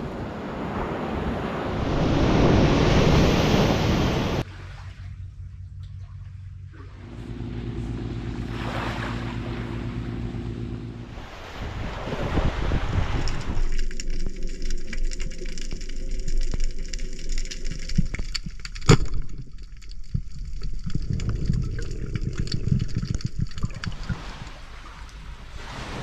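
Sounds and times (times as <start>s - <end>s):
muffled underwater rumbling: 1.6s - 26.0s
small underwater crackles: 12.8s - 25.8s.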